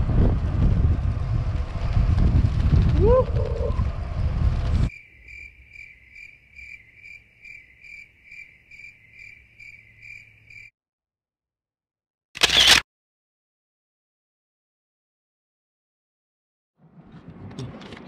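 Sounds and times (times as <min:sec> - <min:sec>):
wind buffeting microphone: 0:00.0 - 0:04.9
insect chirping: 0:04.9 - 0:10.7.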